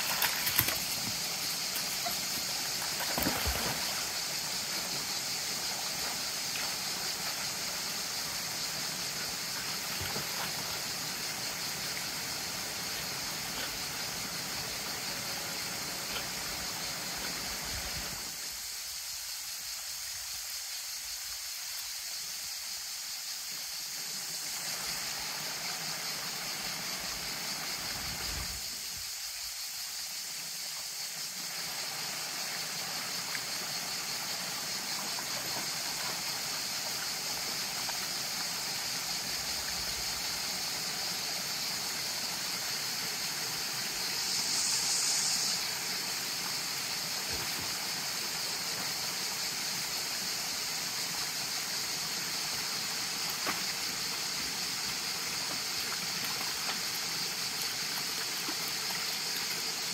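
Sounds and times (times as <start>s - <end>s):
stream running over rocks: 0.0s - 59.9s.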